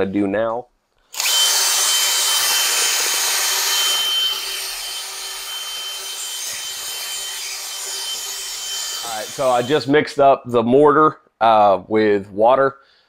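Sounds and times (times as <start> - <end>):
power drill motor whine: 1.1 - 9.8.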